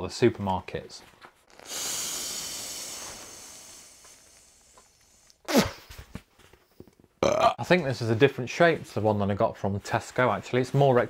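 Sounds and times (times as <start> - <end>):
mouth sound at a valve: 1.5 - 5.9
air hissing through a valve: 1.6 - 5.4.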